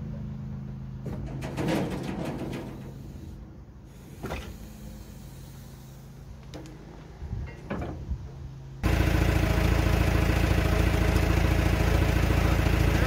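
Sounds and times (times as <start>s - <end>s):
forklift engine idling: 8.8s - 13.0s.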